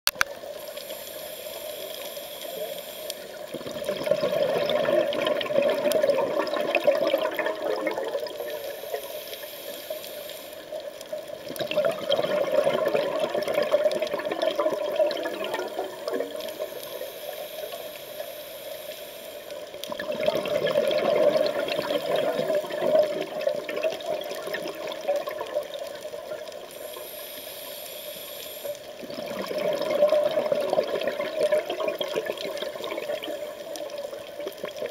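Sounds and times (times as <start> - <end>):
hissing inhale through regulator: 0.4 - 4.8, 8.2 - 11.2, 12.5 - 20.0, 20.7 - 23.2, 26.5 - 29.9
rush of exhaled bubbles: 3.5 - 9.0, 11.4 - 17.1, 19.8 - 26.6, 29.0 - 34.9.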